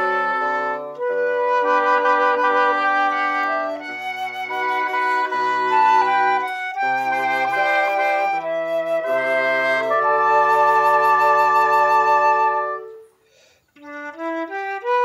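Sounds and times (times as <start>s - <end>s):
woodwind quintet playing: 0.0s - 15.0s.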